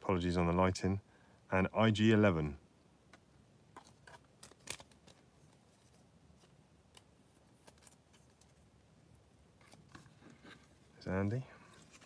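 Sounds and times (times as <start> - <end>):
foil wrapper being torn open: 4.4 - 5.1.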